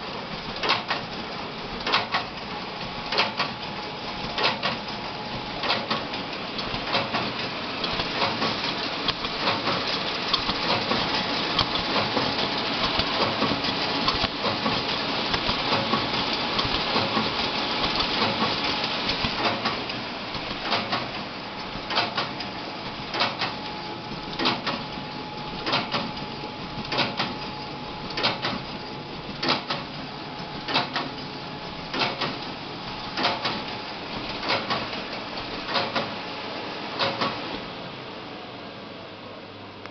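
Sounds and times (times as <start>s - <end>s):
sharp mechanical clack: 0.6s - 1.0s, 1.8s - 2.3s, 21.9s - 22.4s, 29.4s - 29.9s, 30.7s - 31.2s, 31.9s - 32.4s, 33.2s - 33.6s, 35.7s - 36.2s, 37.0s - 37.4s.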